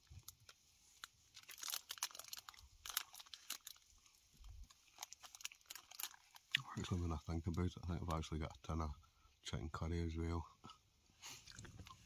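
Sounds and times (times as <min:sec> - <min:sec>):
wrapper crinkling: 0:00.0 - 0:06.6.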